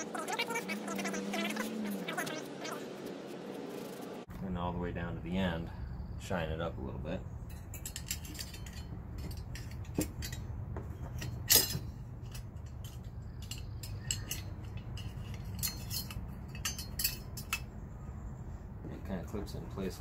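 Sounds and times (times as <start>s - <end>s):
small metal clicks and clinks: 7.5s - 10.5s, 11.1s - 17.7s.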